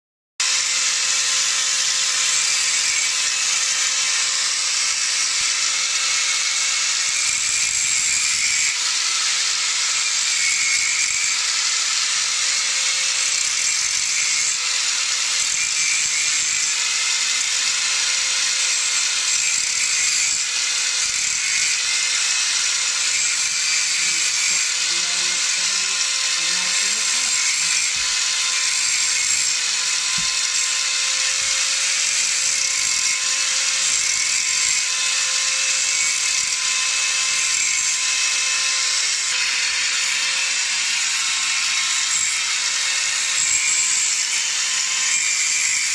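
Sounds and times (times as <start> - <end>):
angle grinder whining: 0.4 - 45.9.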